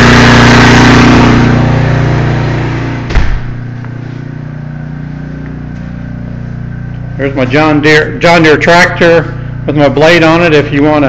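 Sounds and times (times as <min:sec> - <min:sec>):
generator engine running: 0:00.0 - 0:11.0
thud: 0:03.0 - 0:03.7.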